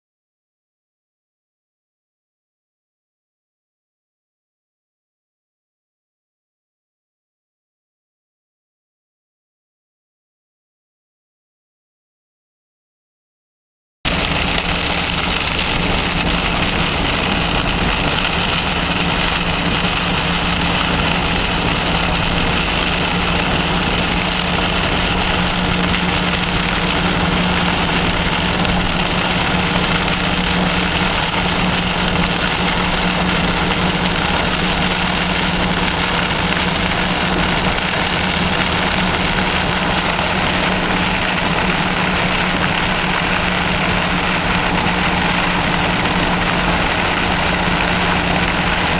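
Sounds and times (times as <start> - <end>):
heavy rain on vehicle body: 14.1 - 48.9
low hum: 14.1 - 48.9
vehicle engine and road noise: 14.1 - 48.9.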